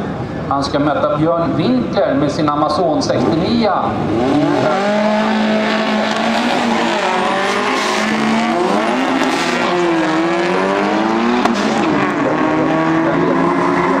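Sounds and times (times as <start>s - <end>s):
car engines revving hard: 3.0s - 14.0s.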